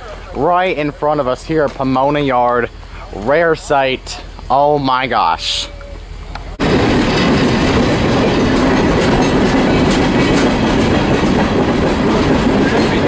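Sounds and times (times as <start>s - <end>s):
steel wheels rumbling on rail: 0.0s - 13.0s.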